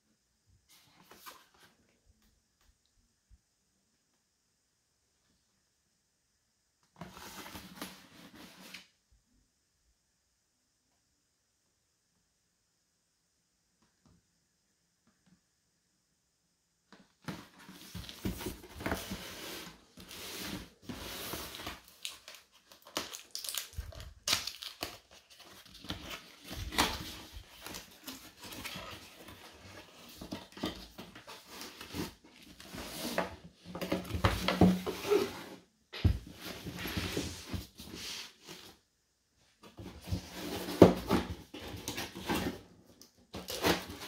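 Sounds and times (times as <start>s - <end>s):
packaging crinkling and rustling: 20.7s - 32.7s.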